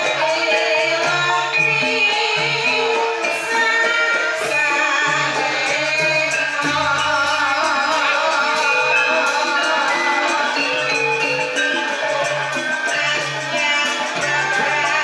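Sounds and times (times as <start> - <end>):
gamelan gongs and metallophones: 0.0 - 15.0
person singing: 0.0 - 15.0.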